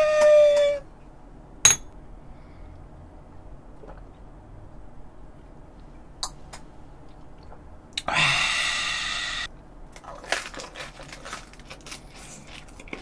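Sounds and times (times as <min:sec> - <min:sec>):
man exhaling loudly: 0:08.0 - 0:09.5
crunching and chewing: 0:09.9 - 0:13.0.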